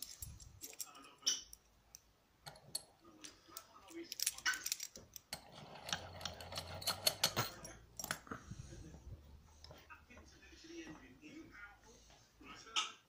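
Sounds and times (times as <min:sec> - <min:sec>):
padlock clinking and rattling: 0:00.0 - 0:01.6, 0:03.6 - 0:08.3.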